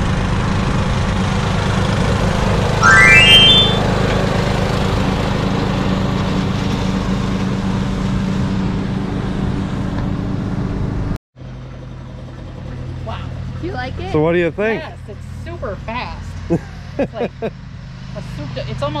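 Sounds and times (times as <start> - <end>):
short rising chime: 2.8 - 3.9.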